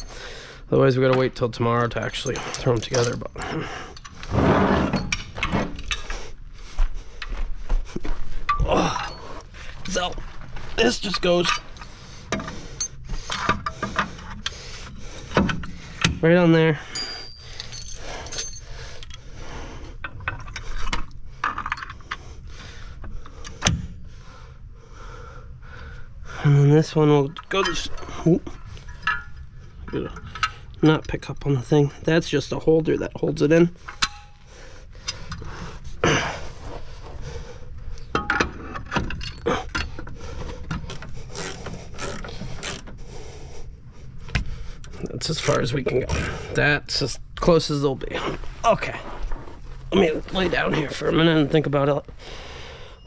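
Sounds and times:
metal clinking and rattling: 0.0 - 6.2, 8.4 - 14.5, 15.2 - 19.2, 20.0 - 22.2, 27.3 - 31.1, 38.0 - 42.8.

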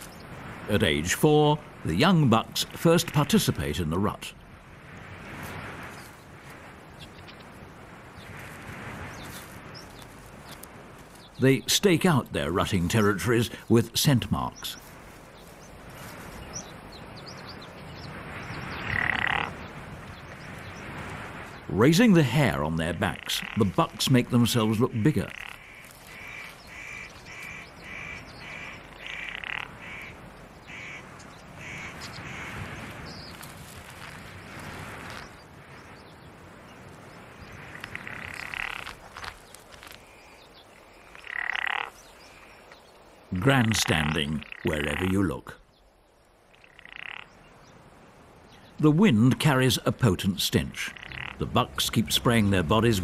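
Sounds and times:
shrub leaves and twigs rustling: 5.2 - 43.3
buzzy animal calls: 18.8 - 19.6, 37.6 - 39.0, 50.7 - 52.5.

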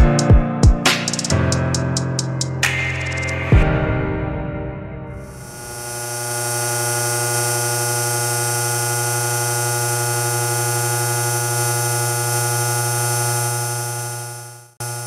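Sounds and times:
synthesizer drone: 2.4 - 6.6.

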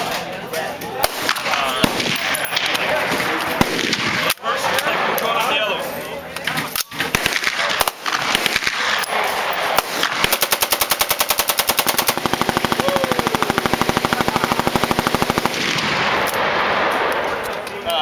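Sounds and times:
rifle firing automatic bursts: 7.0 - 17.4.

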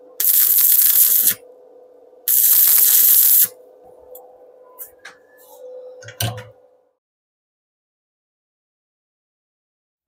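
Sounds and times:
faint steady hum: 0.0 - 7.0
arc welding hissing and crackling: 0.2 - 1.4, 2.3 - 3.6.

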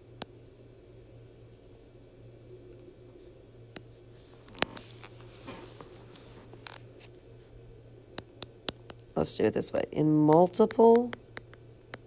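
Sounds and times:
steady low hum: 0.0 - 12.0
stylus tapping glass screen: 10.2 - 12.0.

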